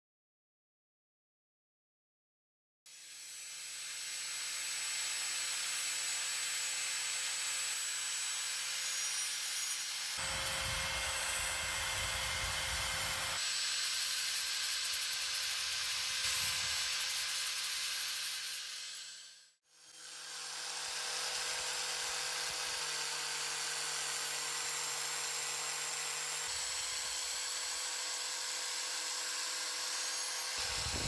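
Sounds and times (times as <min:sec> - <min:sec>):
power tool motor: 0:02.9 - 0:31.0
sanding disc on steel: 0:08.1 - 0:19.5, 0:29.0 - 0:31.0.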